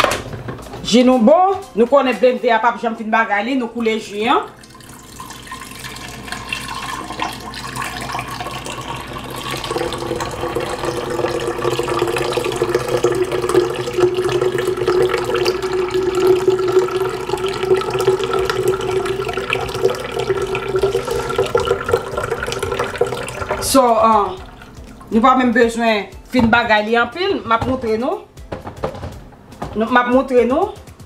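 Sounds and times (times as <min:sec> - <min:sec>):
juice pouring into pitcher: 0:04.5 - 0:25.2.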